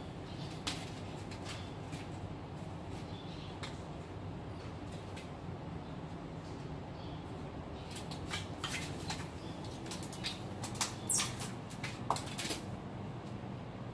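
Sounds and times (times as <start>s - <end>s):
claws scratching a door: 7.9s - 12.7s.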